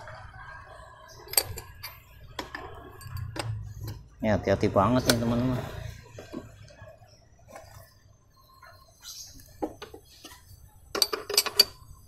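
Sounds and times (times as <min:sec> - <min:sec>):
spanner clicking and clinking: 0:10.9 - 0:12.0.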